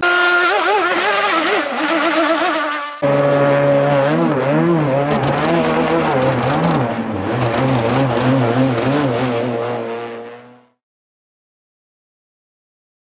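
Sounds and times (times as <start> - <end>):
rc boat motor buzzing: 0.0 - 3.4.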